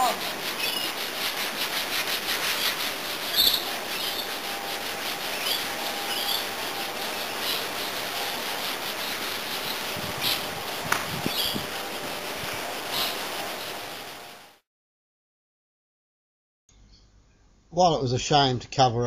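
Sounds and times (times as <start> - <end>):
hand-sanding wood: 0.0 - 14.6.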